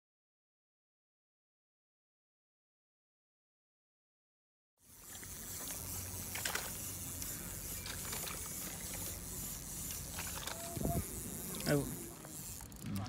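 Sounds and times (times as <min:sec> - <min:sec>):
water lapping: 0:04.9 - 0:13.0.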